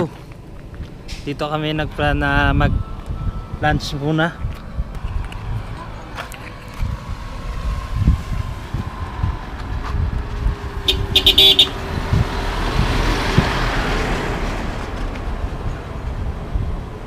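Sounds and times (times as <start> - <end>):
vehicle running on road: 0.0 - 17.0
short horn toot: 10.9 - 11.8.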